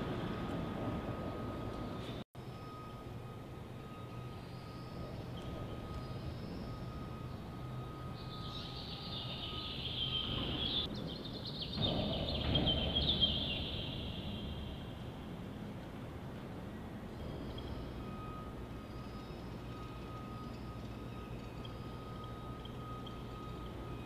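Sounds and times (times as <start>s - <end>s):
high wavering squeal: 0.0s - 10.9s, 17.1s - 24.0s
low machine rumble: 0.0s - 24.0s
faint repeating beep: 17.3s - 24.0s.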